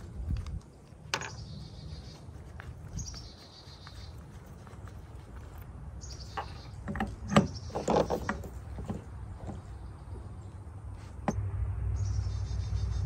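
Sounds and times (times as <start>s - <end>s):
low steady rumble: 4.2s - 13.0s.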